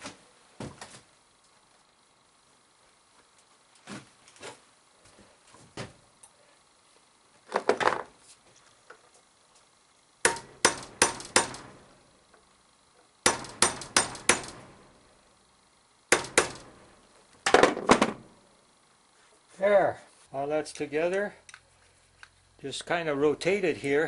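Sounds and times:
hammer striking metal punch: 0:10.2 - 0:11.8, 0:13.2 - 0:14.9, 0:16.1 - 0:16.8.

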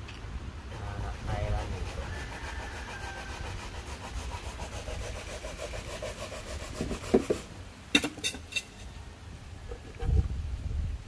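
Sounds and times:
coconut rasping on a grater: 0:00.8 - 0:07.5.

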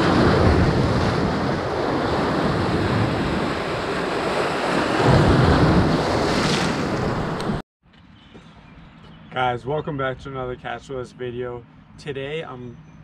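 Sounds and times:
waves breaking over rocks: 0:00.0 - 0:07.6
wind buffeting microphone: 0:00.0 - 0:07.6.

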